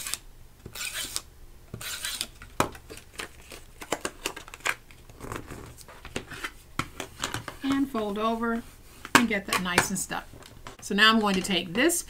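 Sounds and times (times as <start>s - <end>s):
tape runner rasping on paper: 0.0s - 2.4s.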